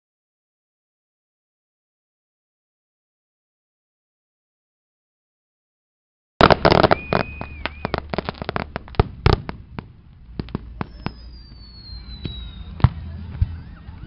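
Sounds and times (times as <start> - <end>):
falling firework whistle: 6.4 - 8.7, 10.6 - 14.0
firework whistle: 6.4 - 8.7, 10.7 - 14.0
fireworks cracking and banging: 6.4 - 13.7.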